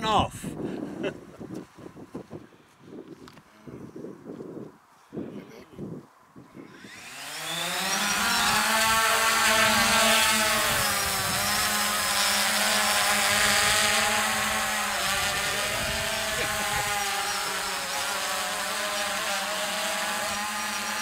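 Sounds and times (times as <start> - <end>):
drone propellers buzzing whine: 6.6 - 21.0.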